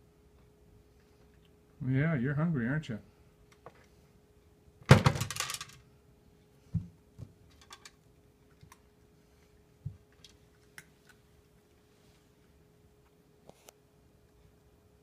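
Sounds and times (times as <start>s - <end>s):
thump with rattle: 4.9s - 5.7s.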